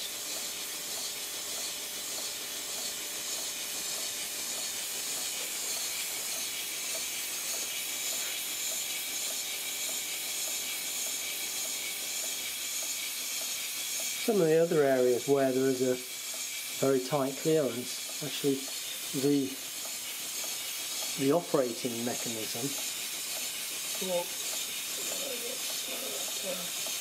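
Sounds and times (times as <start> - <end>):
compressed air hissing: 0.0 - 27.0.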